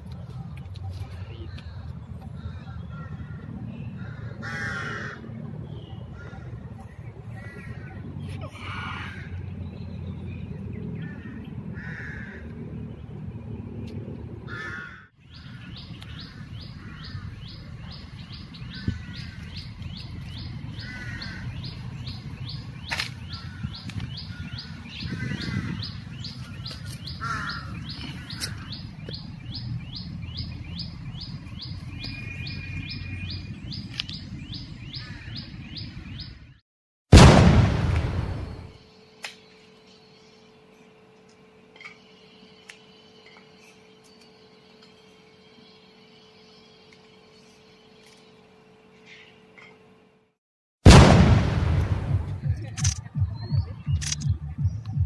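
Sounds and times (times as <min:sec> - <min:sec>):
small birds chirping: 0:00.0 - 0:36.6, 0:39.3 - 0:50.0
crows cawing: 0:02.4 - 0:05.3, 0:07.4 - 0:08.0, 0:08.6 - 0:09.4, 0:11.0 - 0:12.5, 0:14.5 - 0:17.5, 0:18.7 - 0:19.6, 0:20.8 - 0:21.8, 0:27.2 - 0:28.5, 0:34.9 - 0:35.4
steady low rumble: 0:37.1 - 0:38.8, 0:50.9 - 0:55.0.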